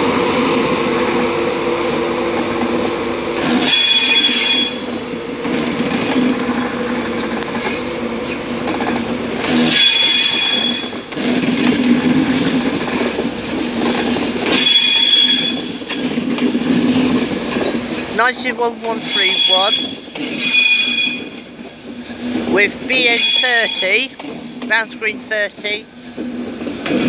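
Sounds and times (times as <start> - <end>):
train wheels rumbling on rails: 0.0 - 27.0
high flange squeals: 14.6 - 15.8, 19.0 - 21.4, 23.0 - 24.1.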